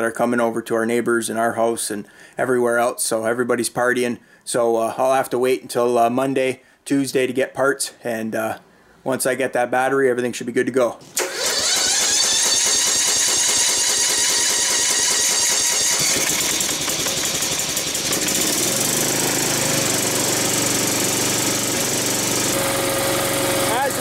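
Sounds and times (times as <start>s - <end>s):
riding mower engine running: 11.2s - 24.0s.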